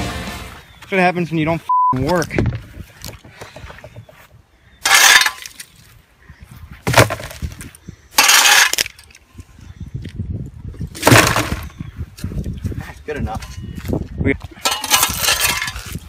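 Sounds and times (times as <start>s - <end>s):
debris clattering into trash can: 4.8s - 5.5s, 14.6s - 15.9s
shovel scraping concrete: 4.8s - 5.6s, 8.2s - 9.0s, 14.7s - 16.0s.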